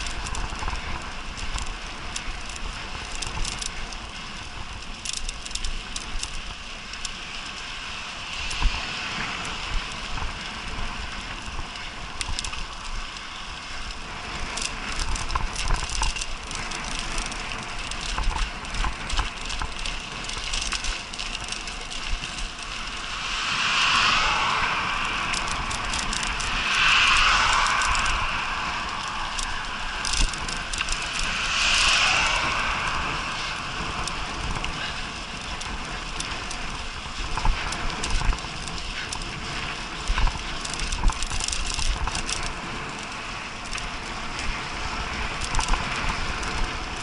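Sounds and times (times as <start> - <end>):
bike clicking and rattling: 0.0 - 47.0
bike tyres hissing on dirt: 0.0 - 47.0
low rumble: 7.5 - 13.2, 13.8 - 42.7.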